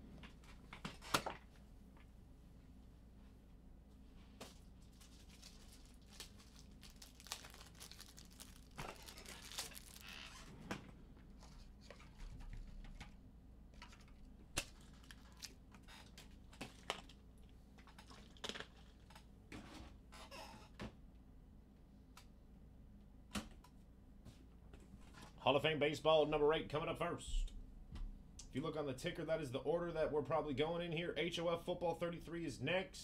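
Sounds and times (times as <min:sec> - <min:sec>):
faint rustling and crinkling: 0:00.1 - 0:20.7.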